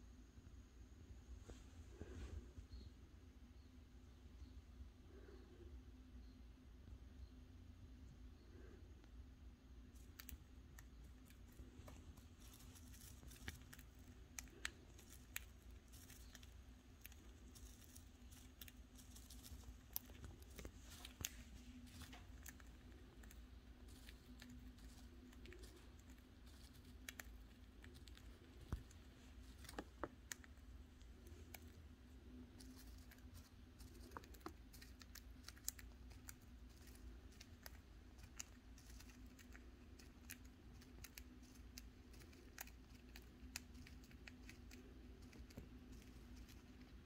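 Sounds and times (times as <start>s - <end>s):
low steady hum: 0.0s - 47.0s
bird cracking seeds: 9.9s - 47.0s.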